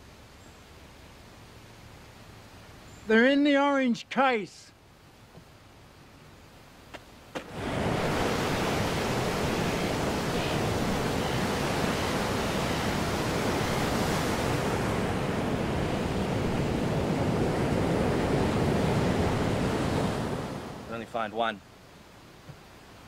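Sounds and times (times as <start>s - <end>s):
outdoor rushing ambience: 7.4s - 21.1s.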